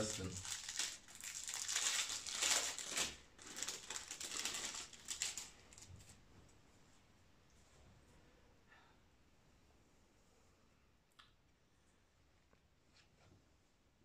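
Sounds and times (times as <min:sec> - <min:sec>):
packaging crinkling: 0:00.0 - 0:06.1.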